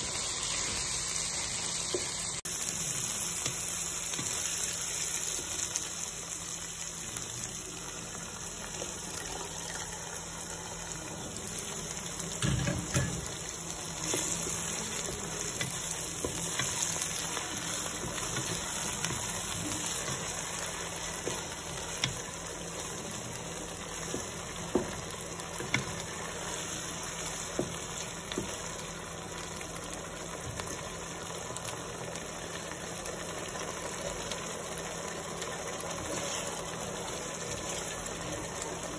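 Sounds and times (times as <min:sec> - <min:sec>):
vegetables sizzling in a pot: 0:00.0 - 0:38.9
spatula stirring and scraping: 0:12.8 - 0:28.6, 0:35.9 - 0:38.2.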